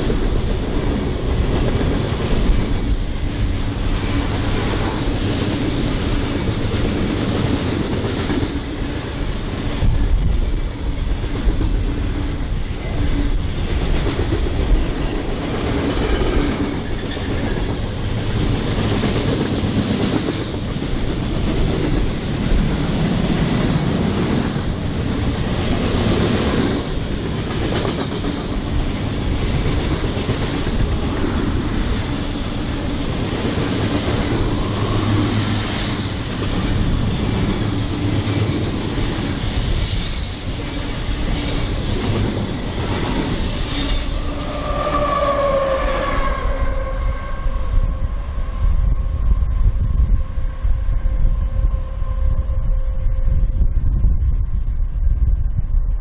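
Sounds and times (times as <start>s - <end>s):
freight train rail noise: 0.0s - 56.0s
high wheel squeal: 5.6s - 7.2s, 36.8s - 48.0s.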